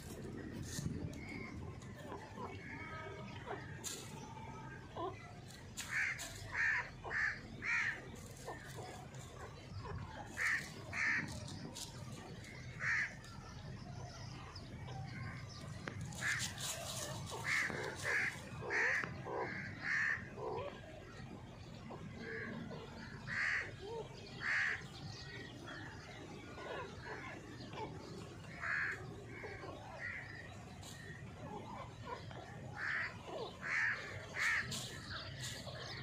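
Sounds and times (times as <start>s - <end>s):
dry leaves rustling: 0.0s - 1.9s, 3.7s - 4.3s, 5.4s - 13.0s, 15.6s - 19.2s, 32.7s - 36.0s.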